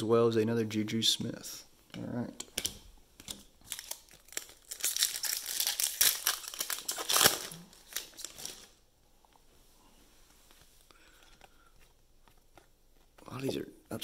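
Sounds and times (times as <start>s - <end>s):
foil wrapper crinkling and tearing: 3.6s - 8.8s.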